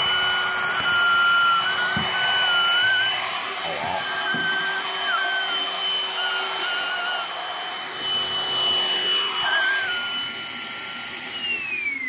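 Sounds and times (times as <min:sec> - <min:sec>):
vacuum cleaner running on carpet: 0:00.0 - 0:12.0.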